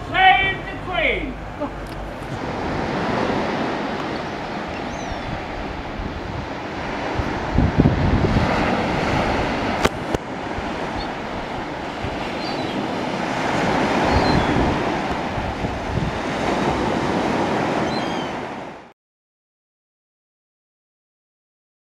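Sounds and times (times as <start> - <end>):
small waves breaking on beach: 0.1 - 18.9
wind buffeting microphone: 1.4 - 18.8.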